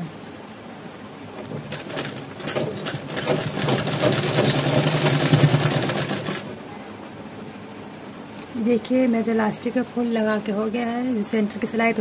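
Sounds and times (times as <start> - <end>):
sewing machine stitching: 1.4 - 6.6.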